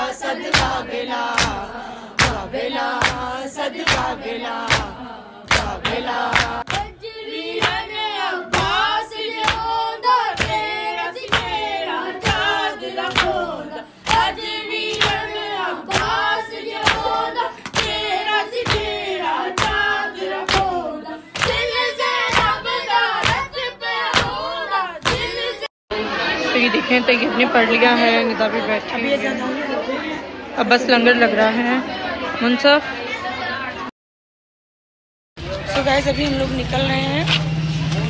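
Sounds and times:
group of voices chanting: 0:00.0 - 0:26.7.

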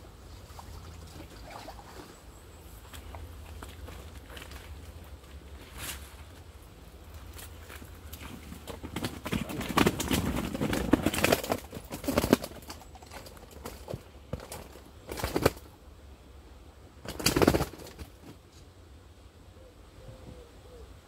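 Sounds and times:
fish flapping: 0:07.4 - 0:15.7.

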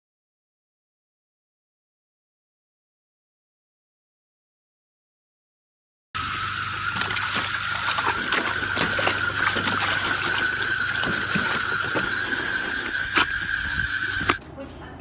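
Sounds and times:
hose jet hissing: 0:06.2 - 0:14.4
water splashing into pool: 0:06.2 - 0:14.4
dog snapping and splashing: 0:06.6 - 0:14.4.

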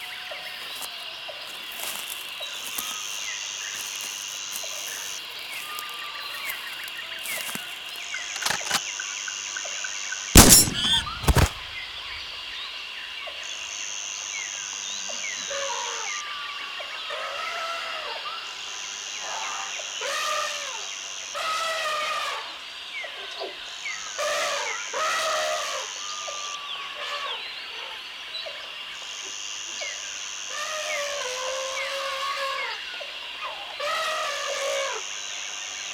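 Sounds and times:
high insect buzz: 0:00.0 - 0:08.9
steady insect drone: 0:00.0 - 0:35.9.

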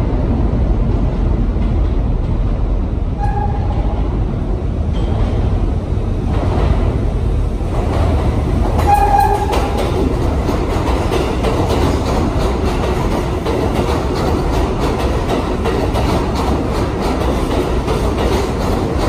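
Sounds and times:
subway train rumbling: 0:00.0 - 0:19.0
train horn blast: 0:03.2 - 0:03.8, 0:08.8 - 0:09.7.

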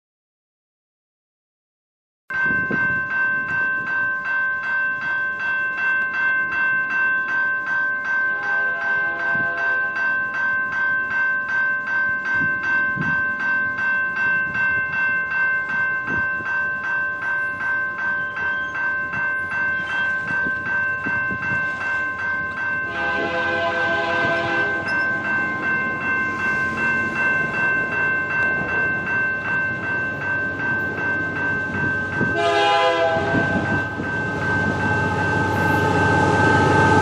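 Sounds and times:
level-crossing warning bell ringing: 0:02.3 - 0:37.0
distant train horn: 0:08.3 - 0:09.9, 0:22.8 - 0:25.0, 0:32.3 - 0:33.6.

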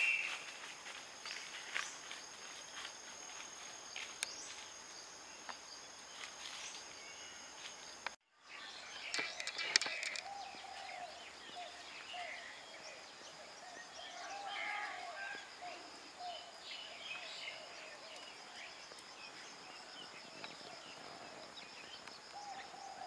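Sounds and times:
whistled bird call: 0:00.0 - 0:00.6
birds chirping: 0:00.0 - 0:02.9, 0:03.7 - 0:23.0
insect drone: 0:00.0 - 0:23.0.

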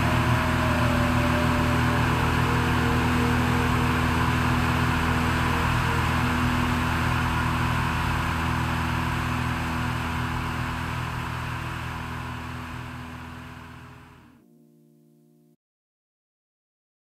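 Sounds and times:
airplane engine and propeller drone: 0:00.0 - 0:14.4.

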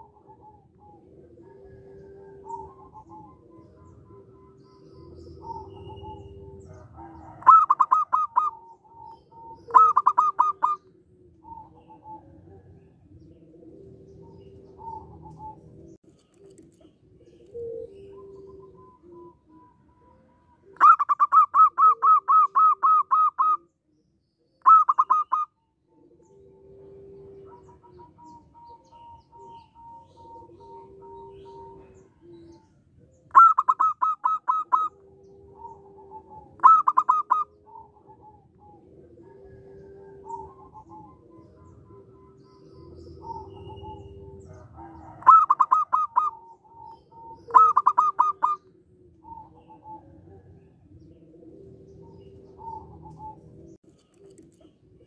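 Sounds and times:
dove calling in quick notes: 0:00.0 - 0:23.7, 0:24.6 - 0:25.6, 0:26.2 - 0:55.0
low held bird notes: 0:00.0 - 0:23.7, 0:24.6 - 0:55.0.

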